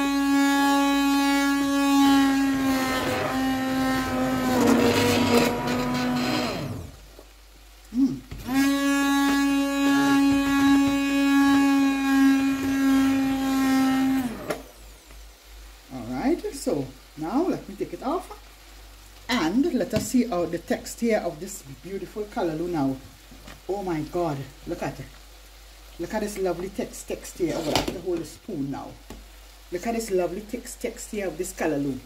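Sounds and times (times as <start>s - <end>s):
stick blender motor whine: 0.0s - 7.0s, 8.4s - 14.8s.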